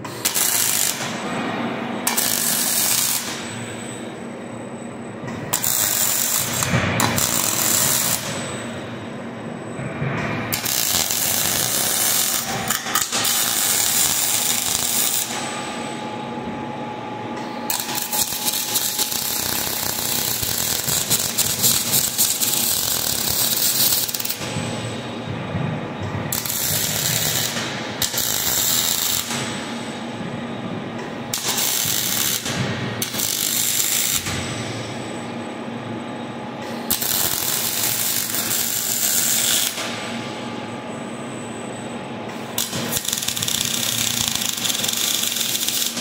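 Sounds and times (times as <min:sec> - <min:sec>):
welding arc crackling: 0:00.1 - 0:01.2, 0:02.1 - 0:03.5, 0:05.5 - 0:08.6, 0:10.5 - 0:15.6, 0:17.7 - 0:24.6, 0:26.3 - 0:29.8, 0:31.3 - 0:34.4, 0:36.9 - 0:39.9, 0:42.6 - 0:46.0.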